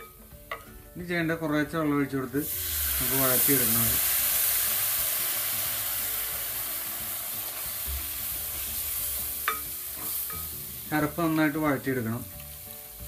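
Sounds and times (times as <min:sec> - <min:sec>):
onions sizzling in oil: 0:02.3 - 0:13.0.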